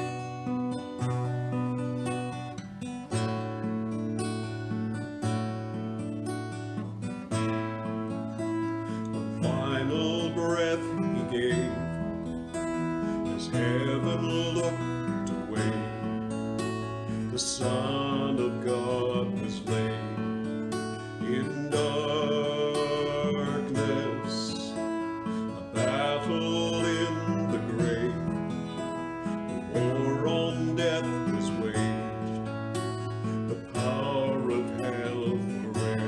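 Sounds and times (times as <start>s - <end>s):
acoustic guitar strumming: 0.0s - 36.0s
man singing: 9.3s - 12.1s, 13.0s - 36.0s.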